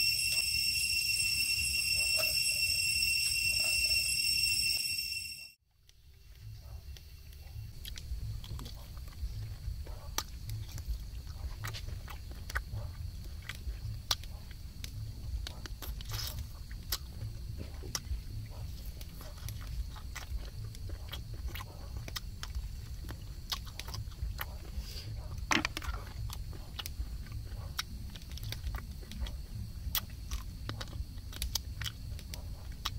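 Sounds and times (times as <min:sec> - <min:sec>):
constant low rumble: 0:06.1 - 0:32.9
man chewing with wet smacks: 0:06.9 - 0:32.9.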